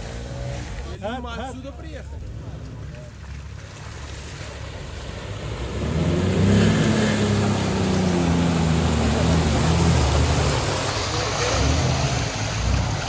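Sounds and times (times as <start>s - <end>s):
tyres churning mud: 0.0s - 13.0s
engine revving hard: 5.6s - 13.0s.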